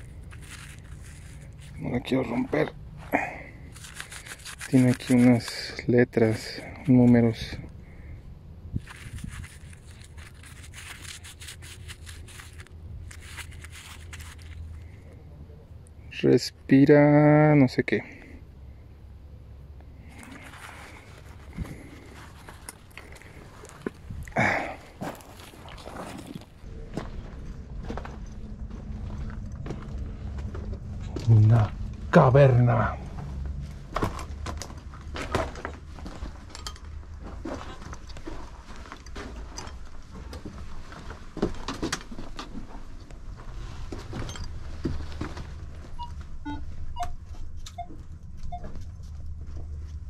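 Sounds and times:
footsteps on gravel: 0.0 - 7.6, 8.8 - 14.8, 20.1 - 31.7
low steady rumble: 0.0 - 50.0
low rumble: 18.4 - 37.5
metal detector beeps: 45.9 - 48.8.

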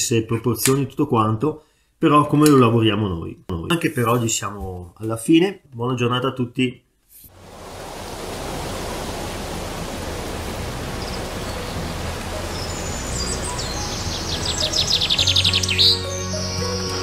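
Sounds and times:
hiss-like ambience: 7.3 - 15.2
background music tones: 10.0 - 17.0.

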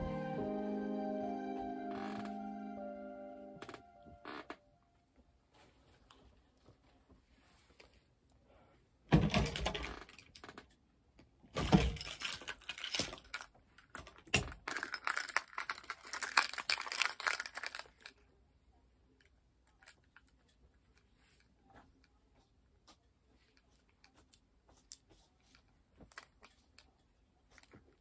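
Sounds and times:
small hard objects clattering: 11.9 - 18.1.

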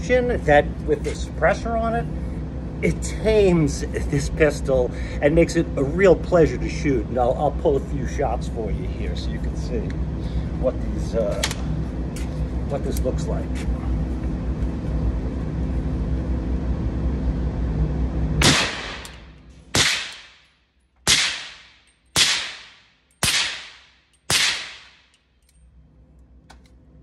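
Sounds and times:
steady background hum: 0.0 - 27.0
suppressed gunshots with echo: 18.4 - 20.4, 21.0 - 25.0.

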